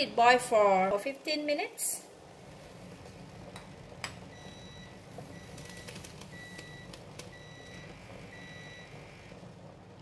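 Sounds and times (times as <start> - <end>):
low steady rumble: 0.0 - 10.0
electronic timer beeping: 4.3 - 9.3.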